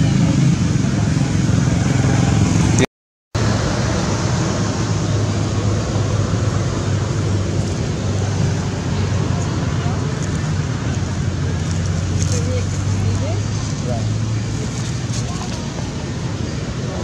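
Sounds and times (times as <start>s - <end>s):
loud outdoor background noise: 0.0s - 17.0s.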